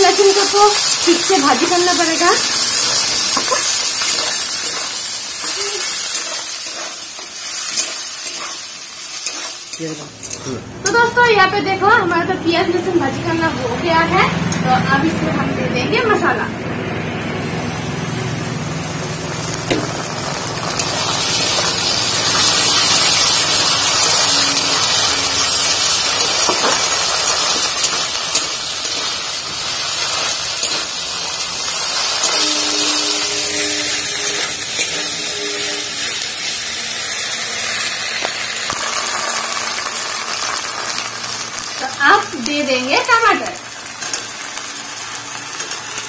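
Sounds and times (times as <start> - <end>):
onions and garlic sizzling in oil: 0.0 - 15.1, 17.4 - 46.0.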